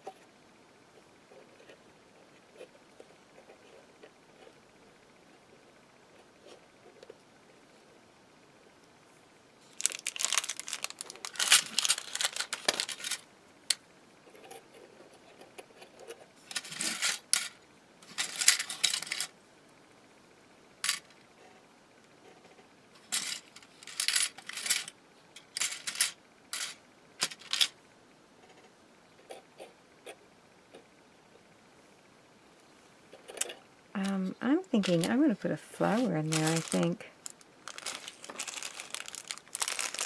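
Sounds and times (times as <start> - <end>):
plastic packaging rustling: 9.6 - 13.2, 34.0 - 40.0
small metal pieces clinking: 9.7 - 13.2, 16.5 - 19.3, 23.1 - 27.7, 36.3 - 40.0.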